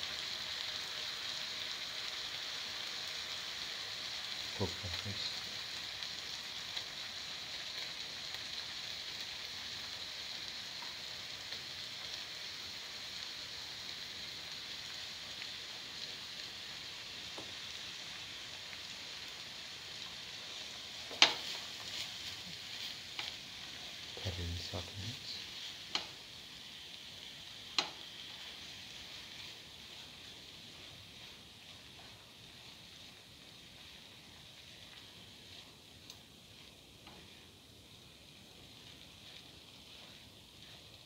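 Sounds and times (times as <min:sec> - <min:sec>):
oil sizzling in a frying pan: 0:00.0 - 0:41.0
spatula scraping a pan: 0:21.0 - 0:24.2, 0:28.0 - 0:38.0, 0:38.6 - 0:41.0.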